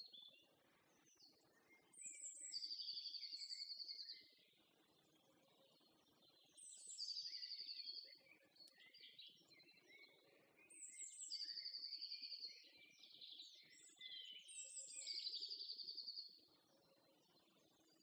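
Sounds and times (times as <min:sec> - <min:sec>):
songbird singing trills: 0:01.3 - 0:04.3, 0:06.6 - 0:16.4.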